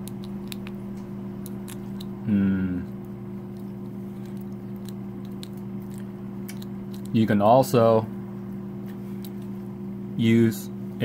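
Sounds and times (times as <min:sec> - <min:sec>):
crab shell crackling: 0:00.0 - 0:07.4
steady low hum: 0:00.0 - 0:11.0
voice murmuring: 0:02.2 - 0:03.0.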